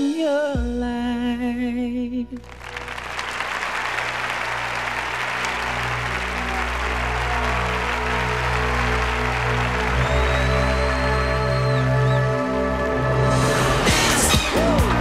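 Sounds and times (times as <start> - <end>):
audience applauding: 2.4 - 12.8
band playing r and b ballad: 13.2 - 15.0.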